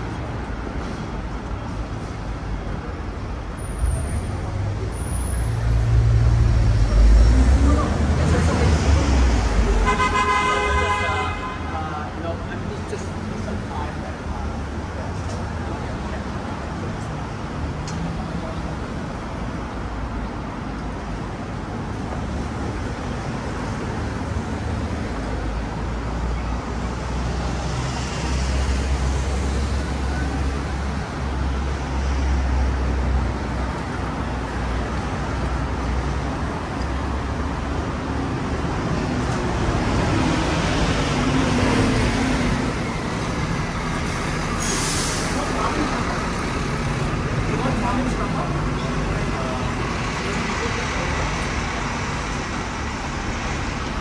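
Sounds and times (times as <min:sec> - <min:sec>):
city street traffic: 0:00.0 - 0:54.0
heavy vehicle engine rumble: 0:11.6 - 0:54.0.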